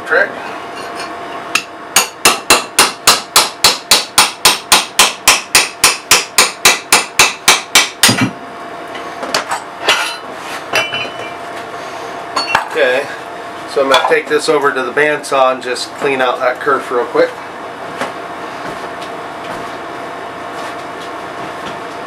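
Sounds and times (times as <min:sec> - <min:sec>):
steel hammer striking: 0:01.6 - 0:08.3.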